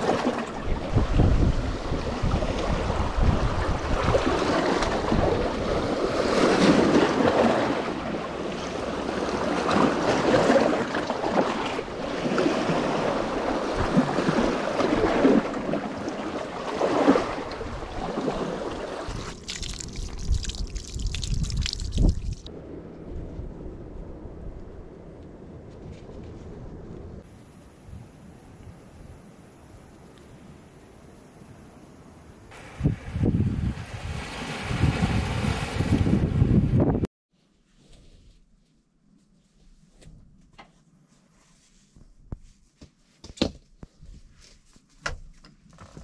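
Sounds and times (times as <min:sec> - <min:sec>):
wind rumbling on microphone: 0:00.0 - 0:10.2, 0:16.9 - 0:29.2, 0:32.5 - 0:37.1
waves washing on a beach: 0:00.0 - 0:20.6, 0:32.5 - 0:36.4.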